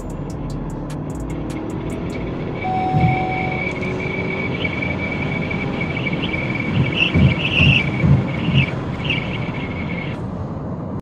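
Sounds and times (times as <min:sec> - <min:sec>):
high-pitched whine: 0:00.0 - 0:10.2
road noise in car cabin: 0:00.0 - 0:11.0
low thumps: 0:02.7 - 0:03.8, 0:06.0 - 0:09.5.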